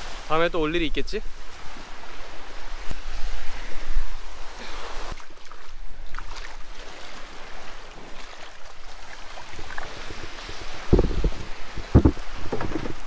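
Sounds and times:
waves washing on a sandy shore: 0.0s - 13.0s
wind buffeting the microphone: 8.8s - 13.0s.

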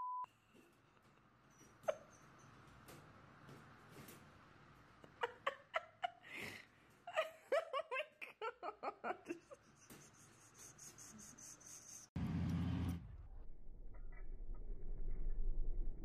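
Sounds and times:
person giggling: 5.0s - 10.5s.

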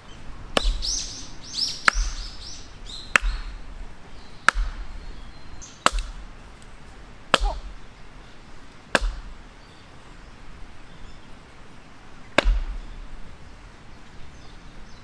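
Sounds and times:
axe chopping onto wooden block: 0.6s - 0.9s, 1.9s - 2.3s, 3.1s - 3.6s, 4.5s - 5.0s, 5.8s - 6.3s, 7.3s - 7.8s, 8.9s - 9.4s, 12.4s - 12.8s.

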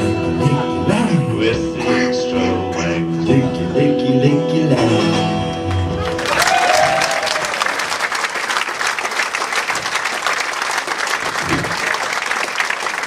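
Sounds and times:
audience applause: 5.7s - 13.0s.

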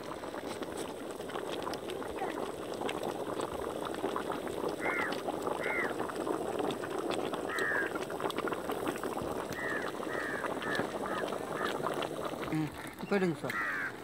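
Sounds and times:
pot simmering bubbling: 0.0s - 14.0s
wood fire crackling: 0.0s - 14.0s
bird calling: 4.8s - 5.9s, 7.5s - 7.9s, 9.5s - 11.9s, 12.9s - 14.0s.

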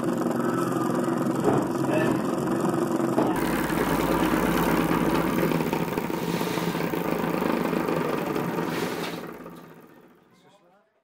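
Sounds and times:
small steam engine chattering: 3.4s - 10.3s.

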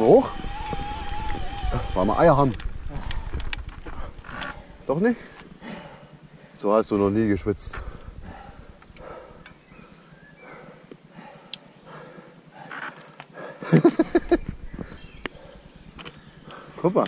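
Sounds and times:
person breathing hard: 2.9s - 6.6s, 7.7s - 13.7s, 16.4s - 16.8s.

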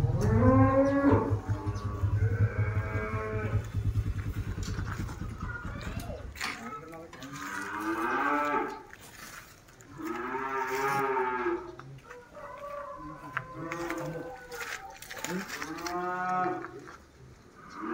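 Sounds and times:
bull mooing: 0.0s - 3.8s, 7.2s - 8.9s, 9.9s - 11.8s, 13.1s - 16.7s.

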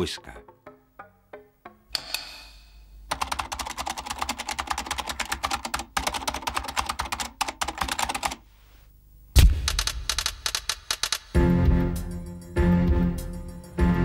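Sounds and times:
sharp hit with ring: 1.9s - 2.9s
typewriter keys clacking: 3.1s - 8.4s, 9.7s - 11.4s.

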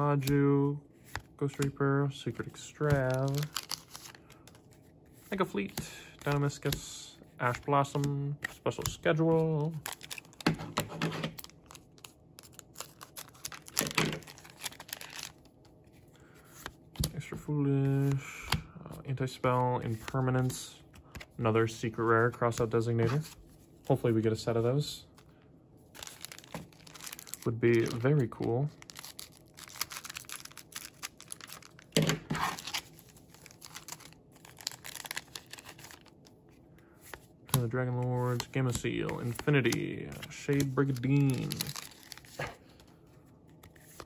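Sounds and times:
cards clicking and rustling: 1.1s - 1.8s, 2.4s - 4.8s, 7.4s - 15.5s, 26.0s - 36.2s, 37.0s - 42.9s
foil wrapper crinkling and tearing: 3.0s - 4.4s, 9.8s - 10.4s, 11.4s - 15.5s, 26.0s - 36.2s, 40.6s - 42.6s.

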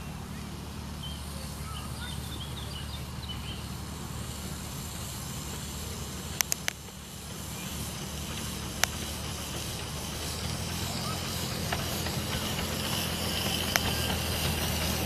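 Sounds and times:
train rumbling on track: 0.0s - 15.0s
sharp clicks: 6.3s - 6.9s.

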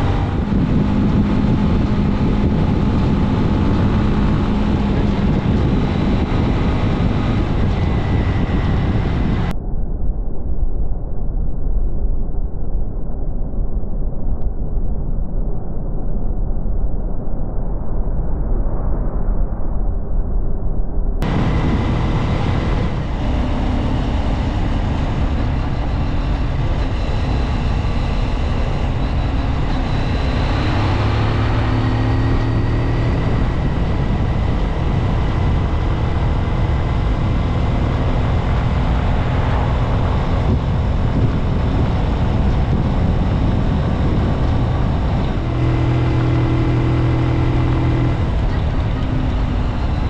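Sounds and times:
motorcycle engine running: 0.0s - 9.5s, 21.2s - 50.0s
heavy wind noise: 0.0s - 50.0s.

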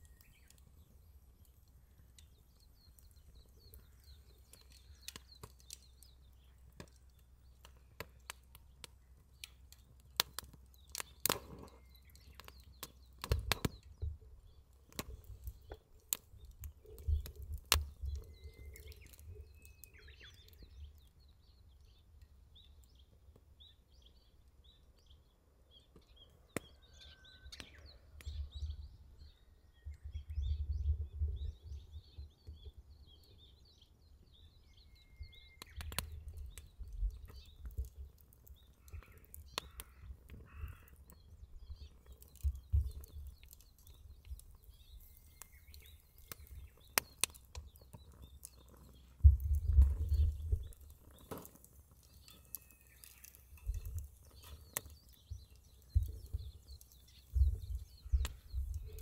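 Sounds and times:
wood fire crackling: 0.0s - 28.6s, 31.0s - 59.0s
small birds chirping: 0.0s - 59.0s
wind rumbling on microphone: 28.2s - 33.8s, 34.7s - 51.6s, 53.6s - 59.0s.

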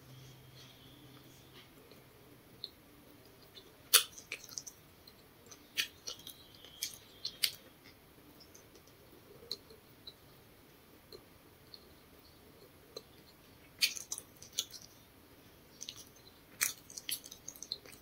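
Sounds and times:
person chewing with mouth clicks: 1.2s - 10.2s, 12.6s - 15.0s, 15.8s - 18.0s.

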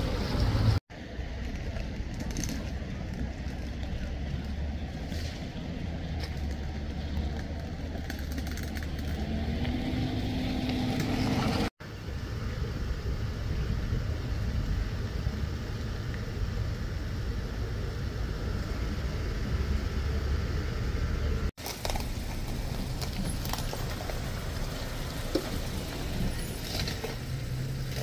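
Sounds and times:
road traffic rumble: 0.0s - 28.0s
passing vehicle engine: 4.1s - 11.7s.

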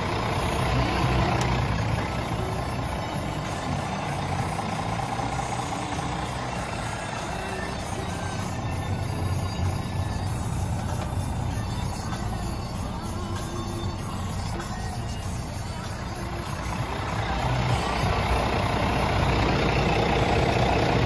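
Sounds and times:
diesel truck engine idling: 0.0s - 21.0s.

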